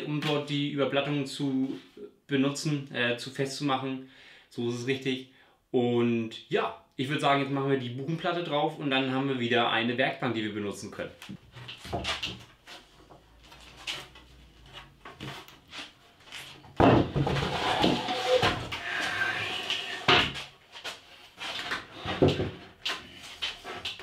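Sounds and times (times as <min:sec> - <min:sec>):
board rubbing and scraping: 0:11.5 - 0:24.0
wooden knocks and bumps: 0:16.7 - 0:18.8, 0:22.1 - 0:22.7.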